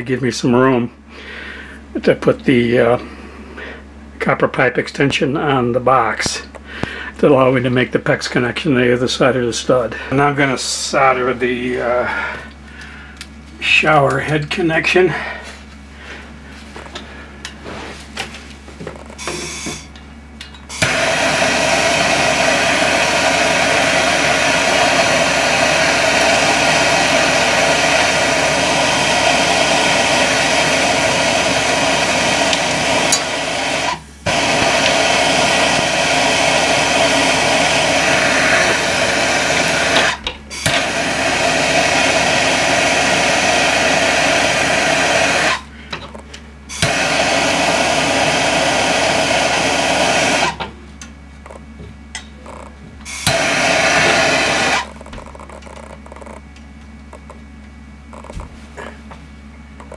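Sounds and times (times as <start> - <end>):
gas torch hissing: 19.2 - 19.9, 20.7 - 45.7, 46.7 - 50.6, 53.1 - 55.0.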